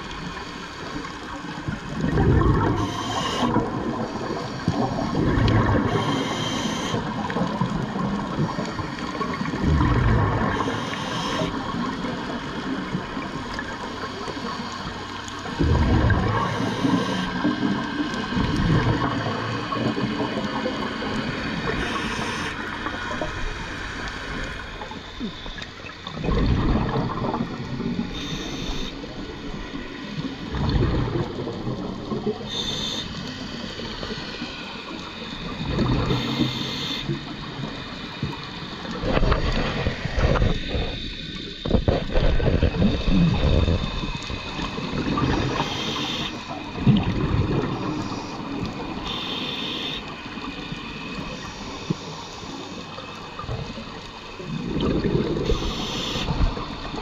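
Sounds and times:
moving water rushing: 0.0s - 57.0s
exhaust bubbles rushing: 1.9s - 2.8s, 3.4s - 5.9s, 9.3s - 10.6s, 15.4s - 16.5s, 17.4s - 21.8s, 26.2s - 28.1s, 30.4s - 32.5s, 35.6s - 36.1s, 46.7s - 48.0s, 54.5s - 55.4s.

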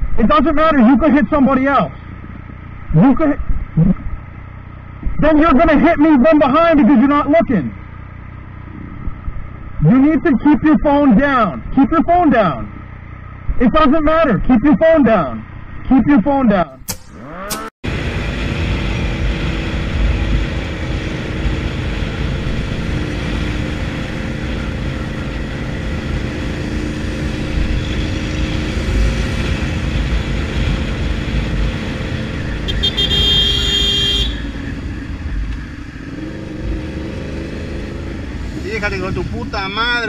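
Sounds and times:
motorcycle engine running: 17.0s - 40.0s
wind rumble on microphone: 17.9s - 32.7s
vehicle horn: 32.6s - 34.7s.

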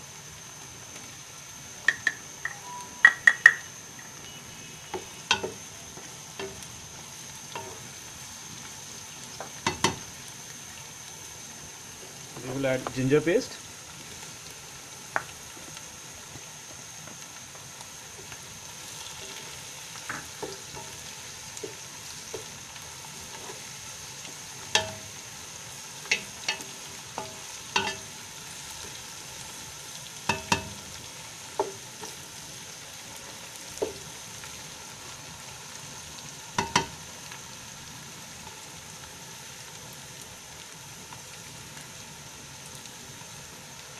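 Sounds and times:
food sizzling in oil: 0.0s - 43.9s
spatula knocking against pot: 3.0s - 3.6s, 24.8s - 25.1s, 30.3s - 30.8s.

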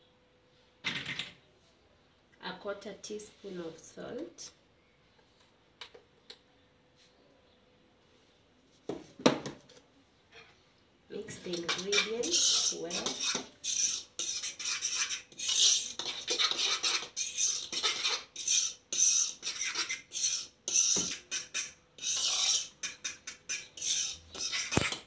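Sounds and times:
spoon scraping a bowl: 11.2s - 25.0s.

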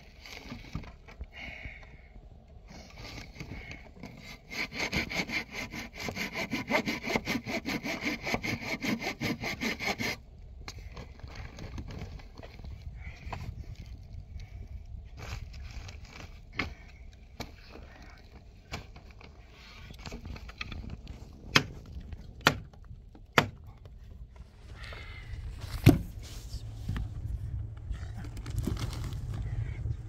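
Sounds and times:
low rumble: 24.0s - 30.0s
dull thud: 25.7s - 26.2s.

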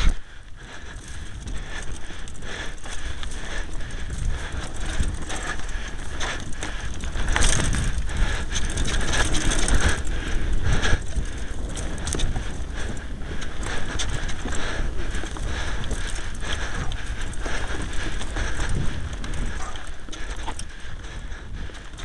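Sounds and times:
mountain bike rattling on dirt: 0.0s - 22.0s
wind rumble on microphone: 0.0s - 22.0s.

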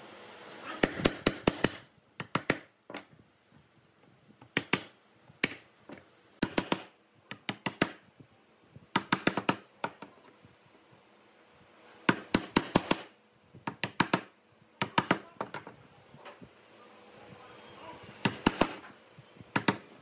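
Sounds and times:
mallet striking chisel: 6.4s - 8.0s.

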